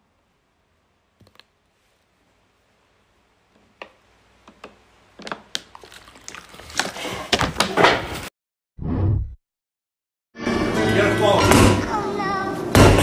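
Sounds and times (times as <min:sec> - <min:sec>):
plastic bottle crackling and knocking: 0:03.6 - 0:07.9.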